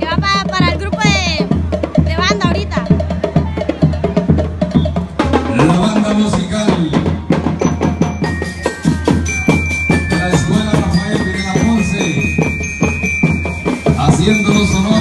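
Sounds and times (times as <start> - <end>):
marching band drum cadence: 0.0 - 15.0
bell lyre notes ringing: 7.6 - 15.0.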